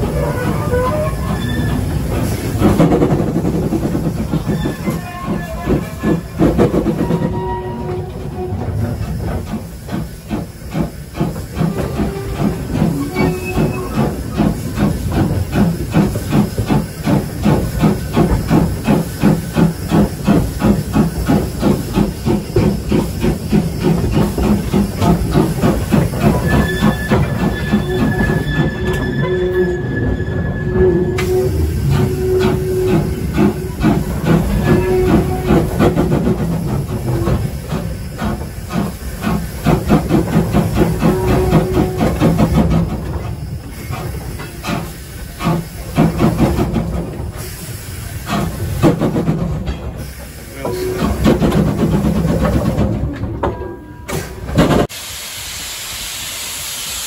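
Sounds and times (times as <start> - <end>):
steam hiss: 0.0 - 7.4, 8.0 - 29.0, 31.2 - 52.8, 54.1 - 57.0
steam locomotive exhaust beats: 0.0 - 57.0
steady high squeal: 26.2 - 35.6.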